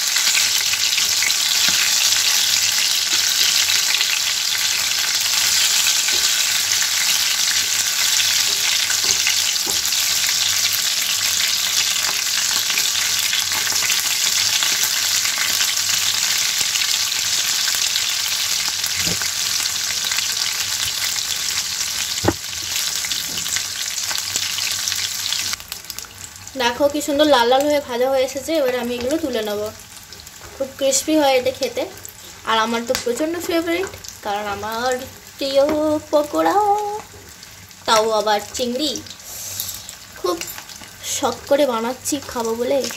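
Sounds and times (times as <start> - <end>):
deep-frying sizzle: 0.0 - 42.9
sharp knock: 22.2 - 22.4.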